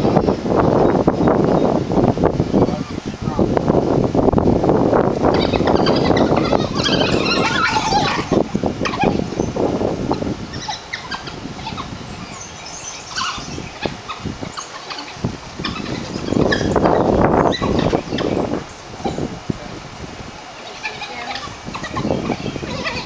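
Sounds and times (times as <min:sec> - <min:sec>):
wild dogs calling: 0:05.1 - 0:23.0.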